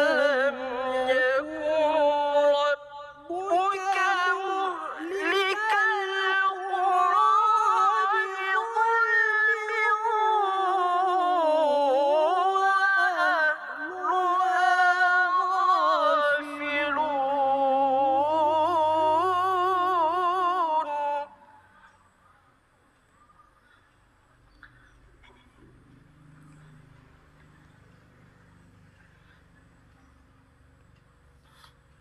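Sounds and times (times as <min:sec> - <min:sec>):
male voice chanting melodically: 0:00.0 - 0:22.2.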